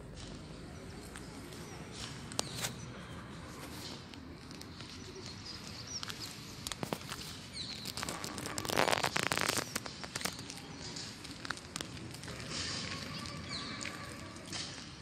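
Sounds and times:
rustling and crackling: 3.5s - 15.0s.

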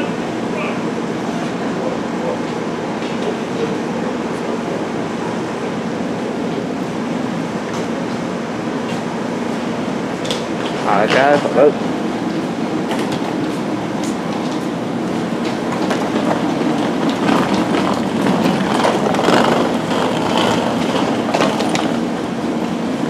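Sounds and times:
train equipment humming: 0.0s - 23.0s.

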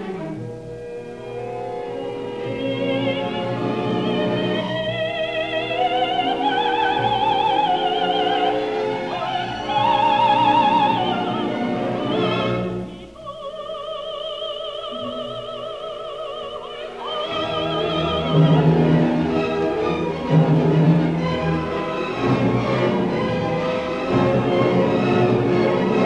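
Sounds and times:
orchestra playing: 0.0s - 13.2s, 14.7s - 26.0s
operatic female voice singing: 2.6s - 19.0s.

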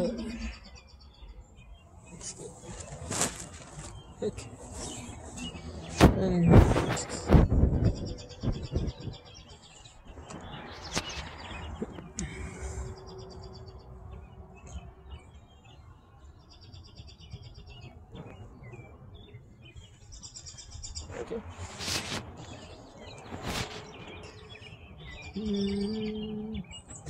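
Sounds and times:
songbird trilling: 23.9s - 27.0s.

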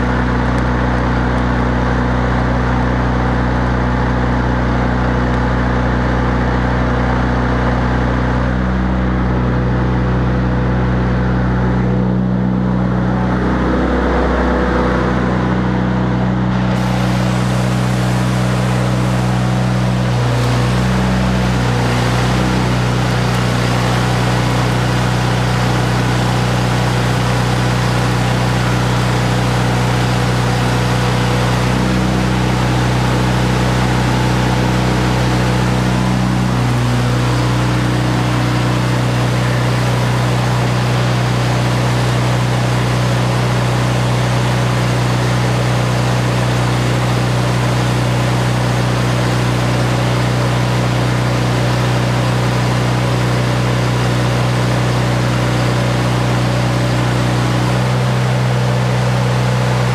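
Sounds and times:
generator engine droning: 0.0s - 59.9s
steady hiss: 16.8s - 41.1s.

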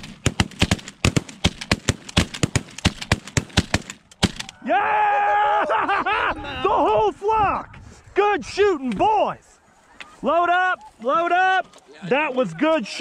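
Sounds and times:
rapid shotgun fire: 0.0s - 4.6s
man shouting: 4.6s - 5.8s.

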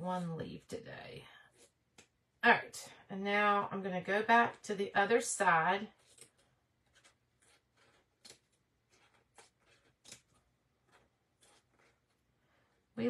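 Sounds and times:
small scissors snipping: 8.1s - 8.6s, 9.3s - 10.4s.

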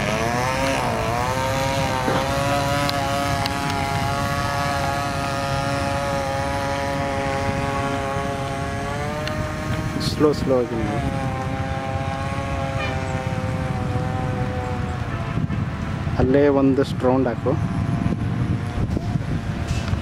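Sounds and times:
model engine running at speed: 0.0s - 16.4s.

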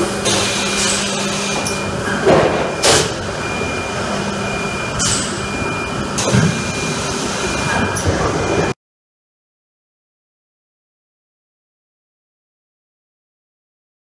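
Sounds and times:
machine humming: 0.0s - 8.8s
machine knocks: 1.6s - 3.3s.

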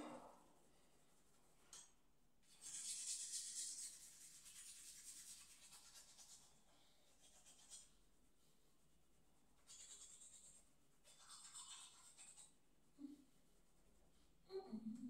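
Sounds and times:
toothbrush scrubbing teeth: 1.2s - 8.1s, 8.8s - 14.2s.

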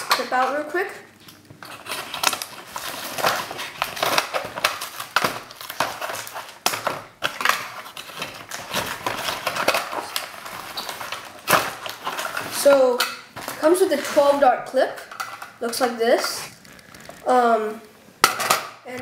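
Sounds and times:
cardboard crinkling and scraping: 1.2s - 14.5s, 16.0s - 17.6s.

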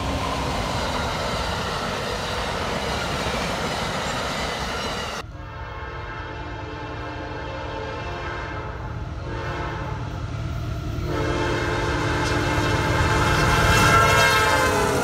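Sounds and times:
locomotive air horn blasts: 5.3s - 10.0s, 11.0s - 15.0s.

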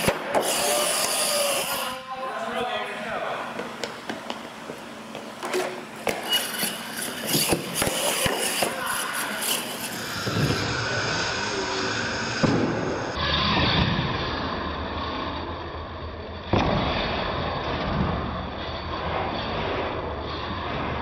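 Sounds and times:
electric motor and gears whining: 0.0s - 2.0s, 6.0s - 13.4s.

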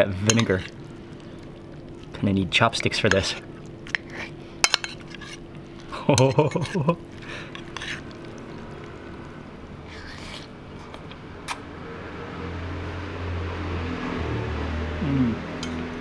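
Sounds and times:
low steady hum: 0.0s - 16.0s
noodle slurp: 7.0s - 11.6s
man murmuring: 15.0s - 15.5s.

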